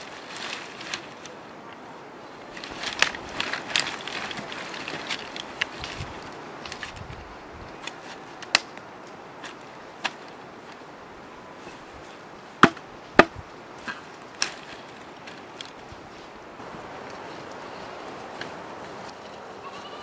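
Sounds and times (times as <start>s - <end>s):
rustle of dry grass and leaves: 0.0s - 20.0s
firewood sticks clacking together: 2.5s - 7.1s, 7.8s - 10.8s, 11.7s - 15.8s.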